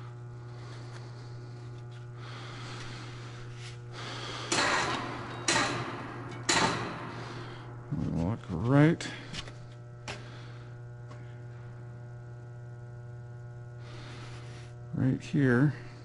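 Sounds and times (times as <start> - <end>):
low shop hum: 0.0 - 16.0
metal scraping clunks: 4.5 - 8.2.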